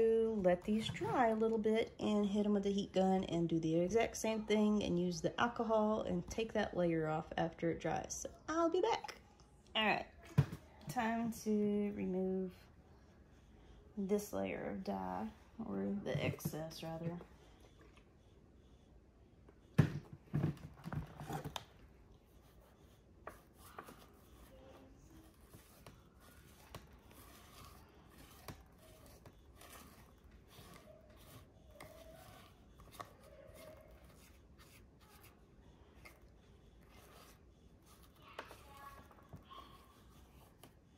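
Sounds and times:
cotton ball rubbing on leather shoes: 22.3 - 40.7.

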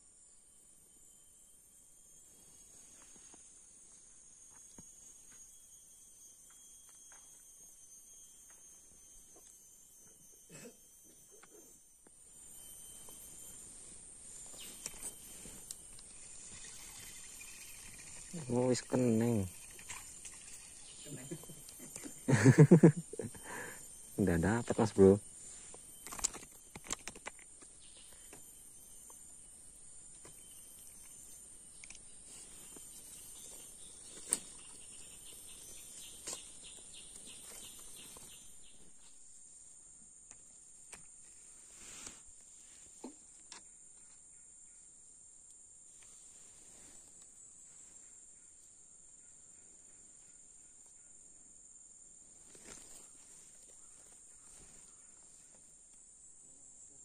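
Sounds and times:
rapid pulsed chirping: 0.0 - 26.8, 27.4 - 40.6
high-pitched insect drone: 0.0 - 57.0
sharp clicks and rustles: 26.0 - 27.7.

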